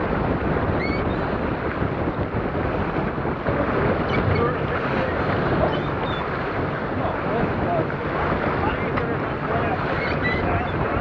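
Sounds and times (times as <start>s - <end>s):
water rushing along hull: 0.0s - 11.0s
wind buffeting microphone: 0.0s - 11.0s.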